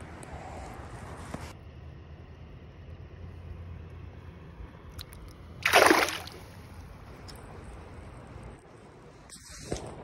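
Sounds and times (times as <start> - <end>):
fish splashing in water: 5.0 - 6.6.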